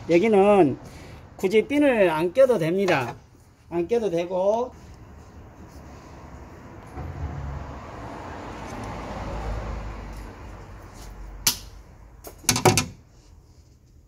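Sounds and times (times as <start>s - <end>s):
sharp metallic click: 11.4s - 12.8s.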